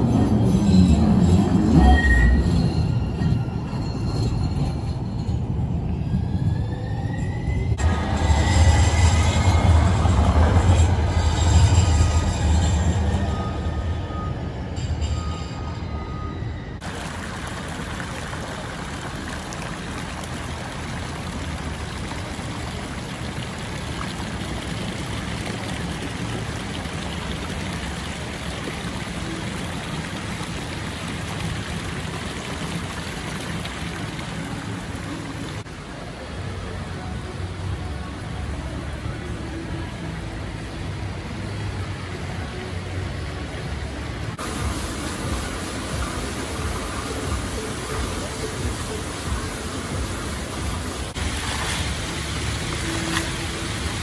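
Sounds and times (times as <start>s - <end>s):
train wheels squealing: 0.0s - 16.8s
train rumbling past: 0.0s - 18.3s.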